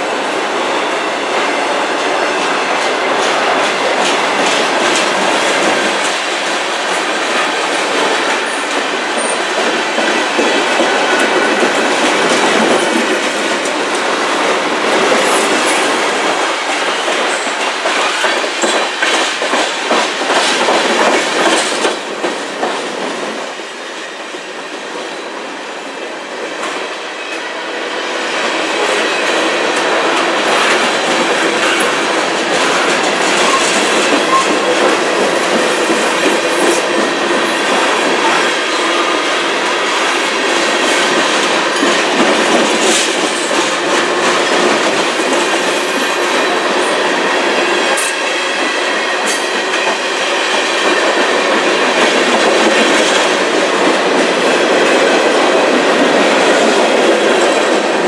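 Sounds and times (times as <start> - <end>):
freight train wheels rumbling: 0.0 - 58.0
wheels clacking on rail joints: 1.9 - 23.3, 28.8 - 58.0.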